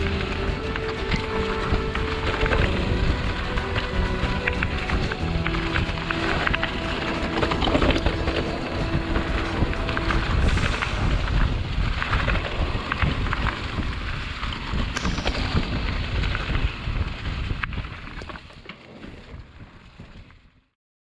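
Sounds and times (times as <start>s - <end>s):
tyres rolling over dirt and leaves: 0.0s - 15.0s
wind buffeting microphone: 0.0s - 20.7s.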